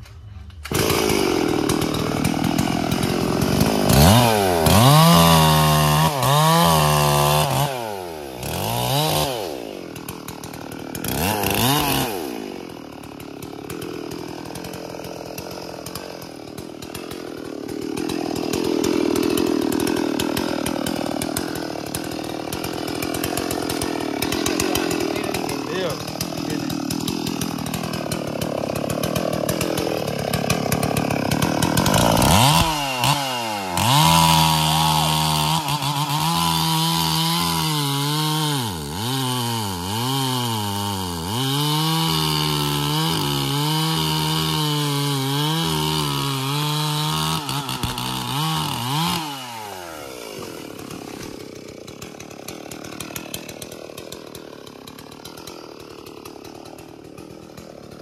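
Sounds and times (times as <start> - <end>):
chainsaw cutting tree trunk: 0.0 - 58.0.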